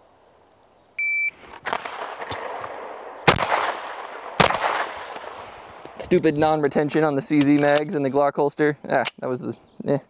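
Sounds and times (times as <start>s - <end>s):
shot timer beep: 1.0s - 1.4s
pistol shots: 1.6s - 6.0s.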